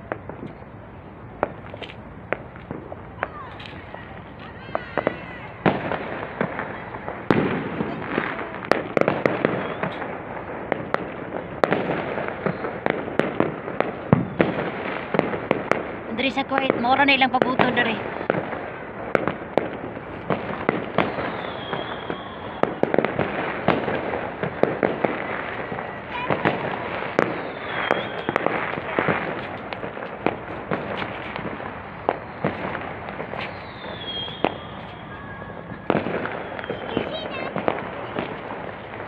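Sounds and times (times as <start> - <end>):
distant fireworks popping: 0.0 - 39.0
steady background noise: 0.0 - 39.0.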